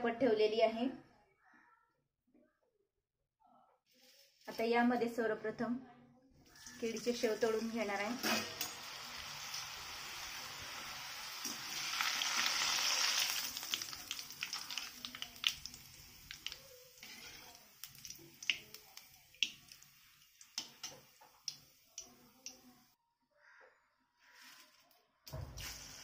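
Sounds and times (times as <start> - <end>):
food sizzling in hot oil: 6.5 - 22.9, 25.4 - 26.0.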